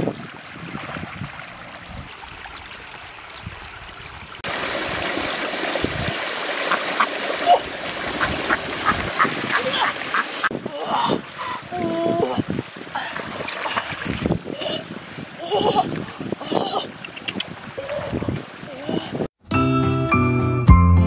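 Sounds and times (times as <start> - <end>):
splashing in water: 0.0 - 19.0
stream running: 0.0 - 19.3
ducks quacking: 8.1 - 10.5.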